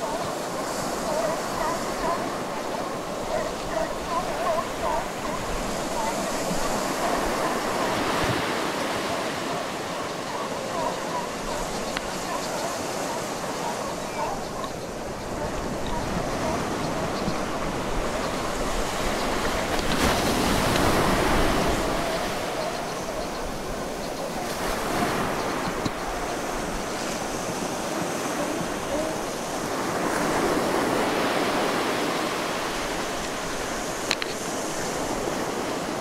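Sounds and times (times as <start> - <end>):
ocean surf breaking on rocks: 0.0 - 36.0.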